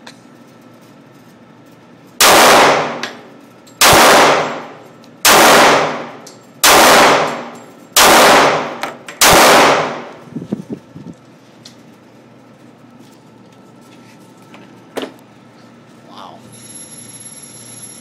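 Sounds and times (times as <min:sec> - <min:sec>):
pistol shots echoing indoors: 0:02.2 - 0:10.2.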